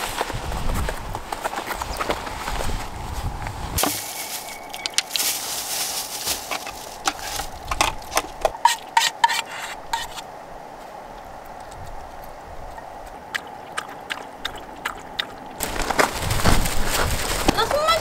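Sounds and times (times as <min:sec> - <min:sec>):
wind buffeting microphone: 0:00.0 - 0:03.8, 0:05.6 - 0:08.6, 0:09.8 - 0:13.4, 0:15.6 - 0:18.0.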